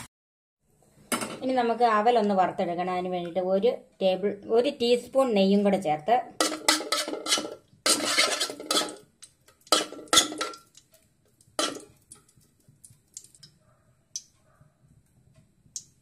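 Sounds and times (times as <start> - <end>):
spoon clattering against metal pan: 6.4 - 10.9, 11.6 - 12.4.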